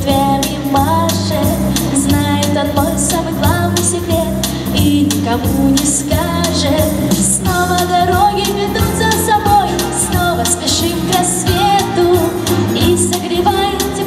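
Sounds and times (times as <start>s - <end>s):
girl singing into microphone: 0.0s - 14.0s
instrumental backing music: 0.0s - 14.0s.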